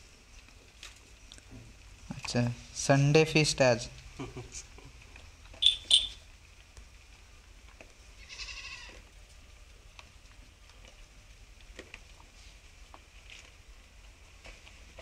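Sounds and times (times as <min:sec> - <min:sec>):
sharp high squeaks: 0:05.6 - 0:06.2
goats feeding from bowl: 0:07.2 - 0:15.0
goat kid bleating: 0:08.2 - 0:09.0.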